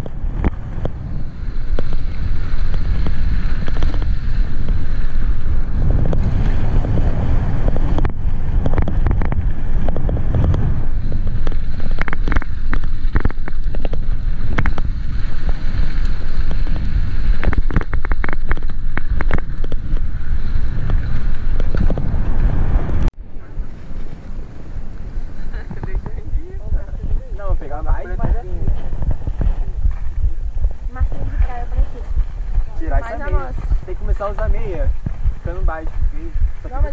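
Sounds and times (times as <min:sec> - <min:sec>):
bike rattling over bumps: 0:00.0 - 0:23.1, 0:25.5 - 0:36.9
wind buffeting microphone: 0:00.0 - 0:36.9.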